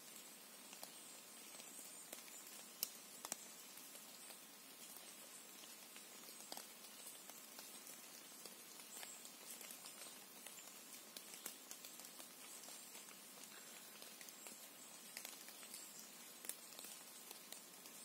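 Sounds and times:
faint even hiss: 0.0s - 18.0s
soft ticks and taps: 0.7s - 3.9s, 6.4s - 10.6s.

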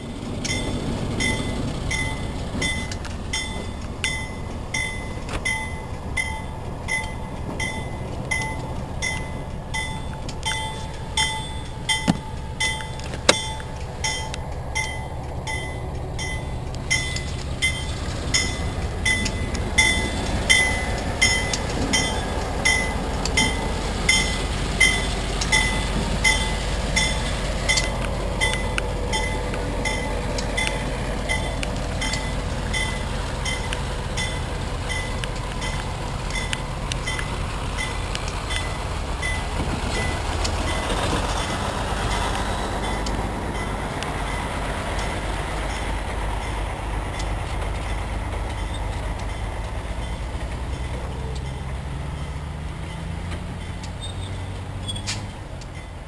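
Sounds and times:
diesel locomotive rumbling: 0.0s - 56.0s
bell ringing: 0.4s - 54.6s.

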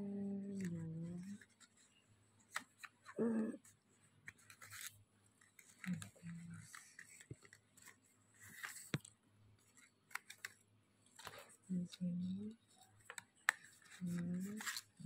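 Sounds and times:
leaf strips rustling and scraping: 4.3s - 9.0s, 13.6s - 15.0s.

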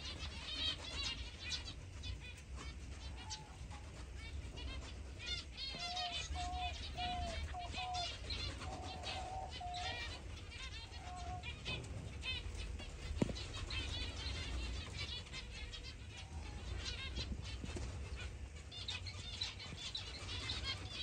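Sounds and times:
finches calling: 0.0s - 21.0s.

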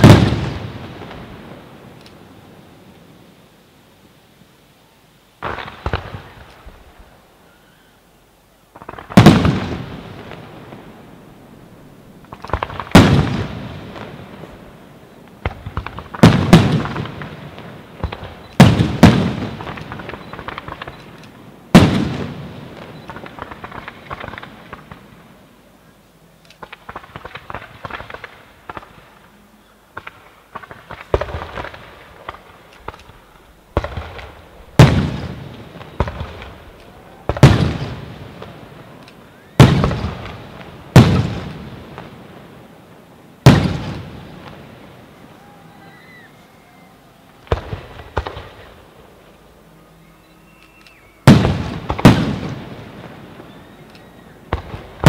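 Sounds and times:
firework shells booming: 0.0s - 2.0s, 8.7s - 11.1s, 12.2s - 14.8s, 15.4s - 25.2s, 29.9s - 42.6s, 43.4s - 45.4s, 47.3s - 49.1s, 51.2s - 55.0s
crackling pops: 1.9s - 2.3s, 5.4s - 7.0s, 12.2s - 14.2s, 15.2s - 25.3s, 26.4s - 42.2s, 50.5s - 55.0s.

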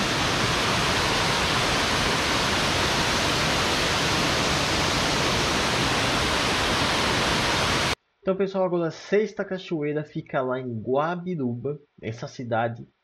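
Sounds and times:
waterfall rushing: 0.0s - 8.0s.

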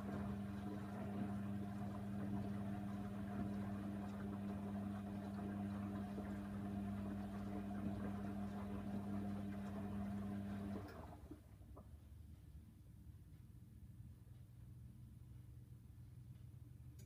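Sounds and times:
washing machine drum motor humming: 0.0s - 11.8s.

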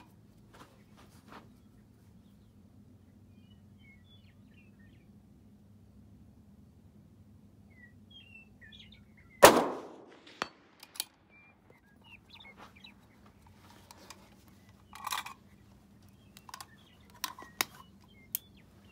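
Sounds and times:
small birds chirping: 0.0s - 6.1s, 7.3s - 9.5s, 10.4s - 18.9s
rifle shot with echo: 9.4s - 10.9s.

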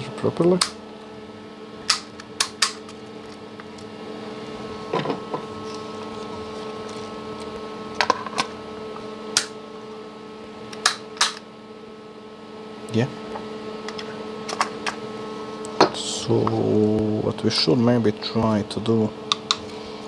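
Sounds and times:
multi-tone equipment hum: 0.0s - 20.0s
circuit breaker clicks and knocks: 10.8s - 11.4s.

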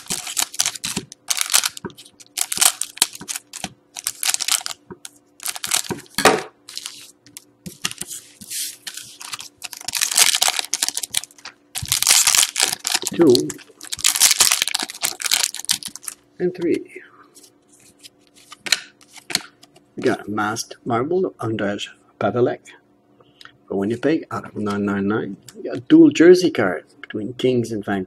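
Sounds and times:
foil wrappers crinkling: 0.0s - 16.2s.

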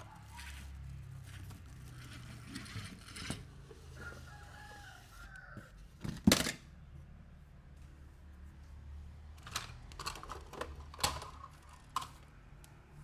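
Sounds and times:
rooster crowing: 3.9s - 5.8s.

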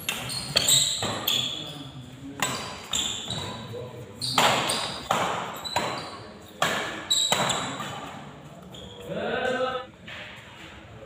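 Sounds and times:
rackets hitting shuttlecock: 0.0s - 1.6s, 2.4s - 8.4s.

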